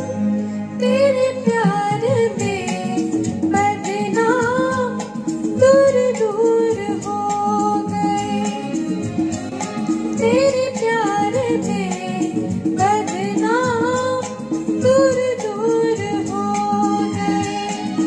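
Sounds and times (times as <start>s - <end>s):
recorded backing track: 0.0s - 18.0s
woman singing into microphone: 0.0s - 18.0s.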